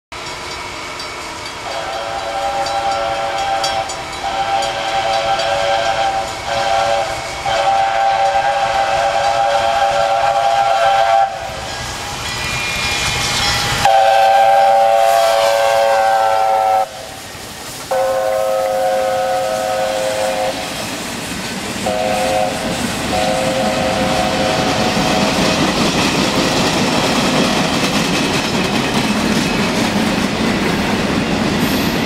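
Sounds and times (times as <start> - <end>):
approaching locomotive noise: 0.1 - 32.0
steam locomotive chime whistle: 0.2 - 21.0, 21.8 - 25.6.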